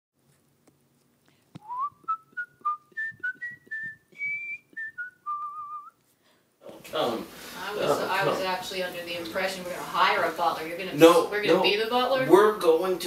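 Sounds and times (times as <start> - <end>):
person whistling a tune: 1.6 - 6.0.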